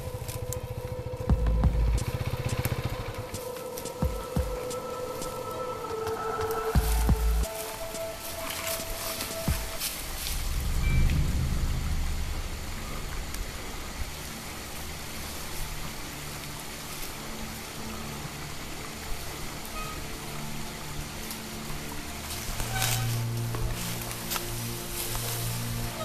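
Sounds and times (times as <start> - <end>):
motorcycle engine at low revs: 0.0 - 4.6
stream running: 0.0 - 26.0.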